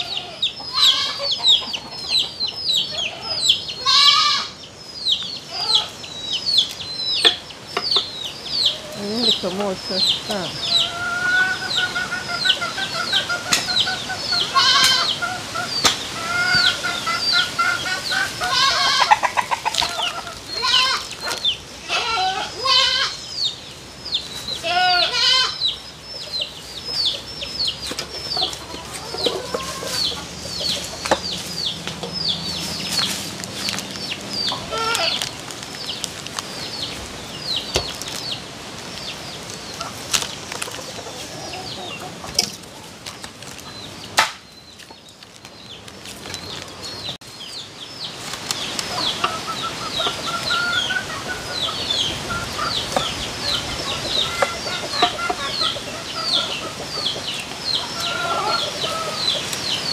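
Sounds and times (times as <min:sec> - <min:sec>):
chickens clucking: 0:00.0 - 0:59.9.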